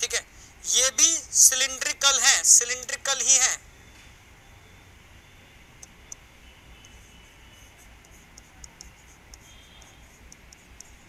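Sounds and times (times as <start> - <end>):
stylus tapping on glass screen: 8.0 - 11.0.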